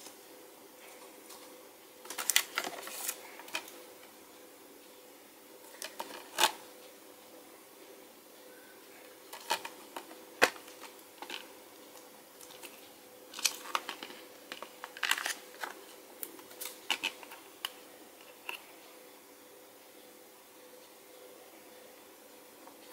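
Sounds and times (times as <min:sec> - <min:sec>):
faint steady hum: 0:00.0 - 0:22.9
plastic case clicks and rustles: 0:02.1 - 0:03.7, 0:09.4 - 0:11.4, 0:13.4 - 0:17.4.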